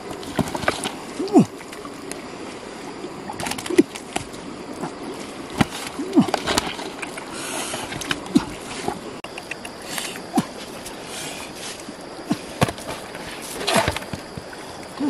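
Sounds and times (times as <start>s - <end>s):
fish flopping and slapping: 0.0s - 2.3s, 3.2s - 15.0s
water rushing from basin: 0.0s - 9.2s.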